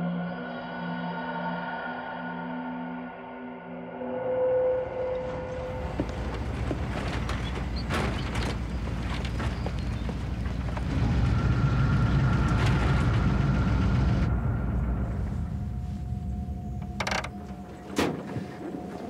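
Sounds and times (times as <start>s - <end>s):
truck engine rumbling: 5.2s - 19.0s
truck body knocking and creaking: 5.6s - 14.2s, 16.7s - 19.0s.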